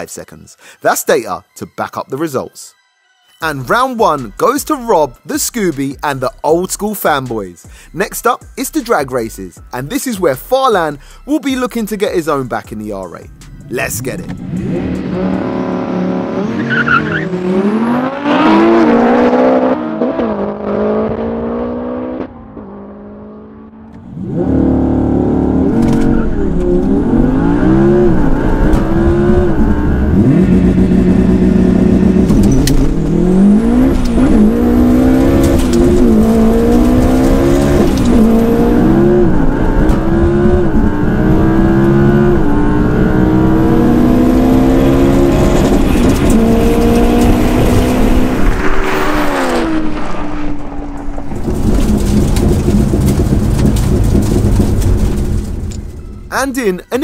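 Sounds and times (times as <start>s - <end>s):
car engine at full throttle: 13.3s - 56.3s
race car engines revving: 14.0s - 55.8s.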